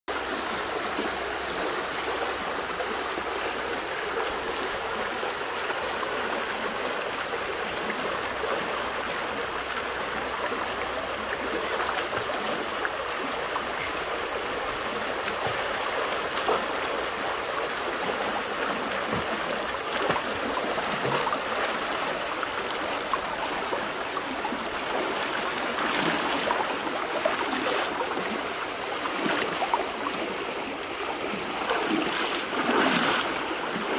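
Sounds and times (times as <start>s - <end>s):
river water rushing: 0.1s - 33.9s
splashes of wading: 7.8s - 33.9s.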